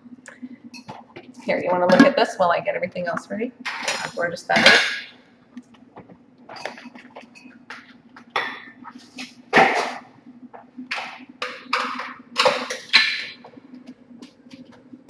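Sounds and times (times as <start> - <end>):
low steady hum: 0.0 - 15.0
kitchenware clattering and scraping: 3.7 - 5.1, 6.5 - 7.5.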